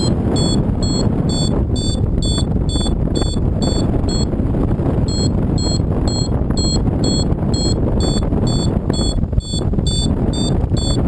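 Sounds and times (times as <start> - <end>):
strong wind on microphone: 0.0 - 11.0
variometer beeping: 0.0 - 11.0.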